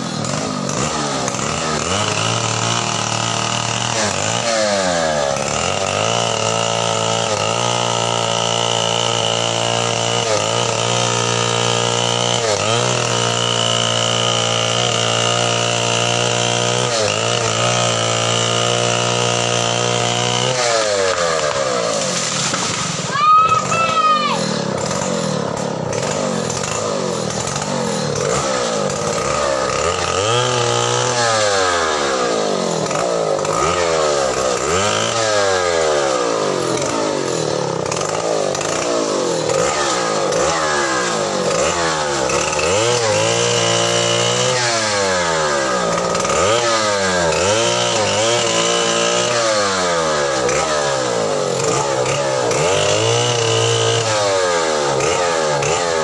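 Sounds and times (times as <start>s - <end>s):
chainsaw engine revving: 0.0s - 56.0s.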